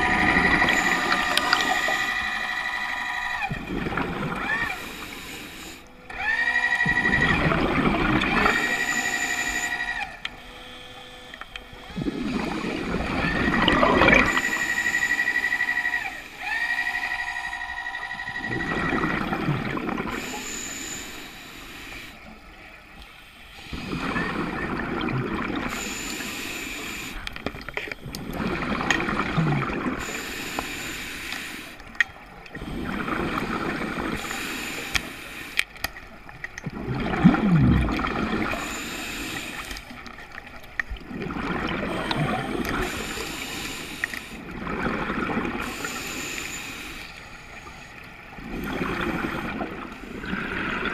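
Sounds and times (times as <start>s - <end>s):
diver breathing through regulator: 0.0s - 10.2s, 11.7s - 17.3s, 18.4s - 22.4s, 23.3s - 31.9s, 32.5s - 35.8s, 37.0s - 40.0s, 41.3s - 50.9s
regulator whistling hum: 0.0s - 22.4s
gurgling exhaust bubbles: 3.4s - 5.0s, 6.8s - 8.9s, 12.0s - 14.5s, 18.4s - 20.3s, 23.7s - 25.8s, 28.0s - 30.1s, 32.5s - 34.3s, 36.6s - 38.8s, 40.9s - 43.3s, 44.4s - 46.0s, 48.4s - 50.9s.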